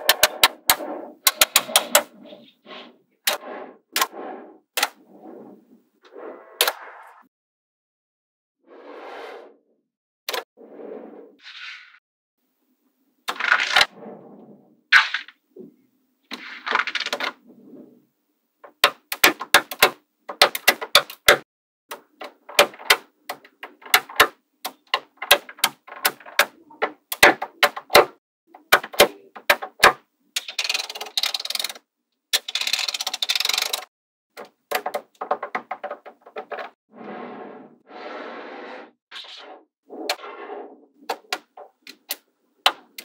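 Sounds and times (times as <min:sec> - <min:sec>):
magnetic balls rattling and scraping: 0:00.0 - 0:05.7, 0:30.4 - 0:31.8, 0:32.4 - 0:33.9
magnetic balls clicking: 0:28.6 - 0:31.8.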